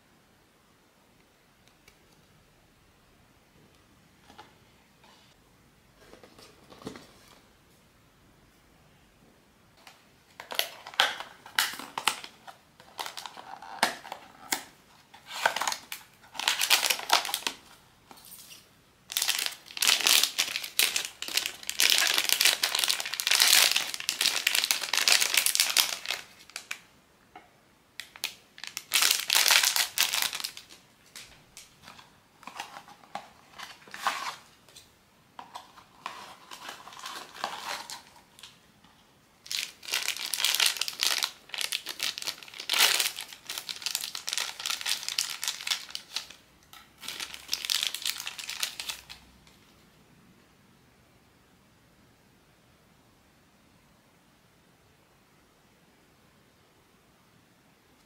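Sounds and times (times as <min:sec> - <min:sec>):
plastic wrapping crinkling: 0:09.8 - 0:26.9, 0:28.0 - 0:34.5, 0:35.4 - 0:38.6, 0:39.4 - 0:49.2.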